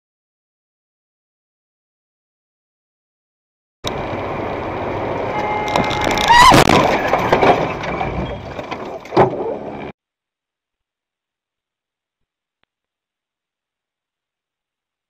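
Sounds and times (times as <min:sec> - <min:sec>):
road and engine noise: 0:03.8 - 0:10.0
short rising squeal: 0:05.3 - 0:08.6
car collision: 0:05.4 - 0:09.4.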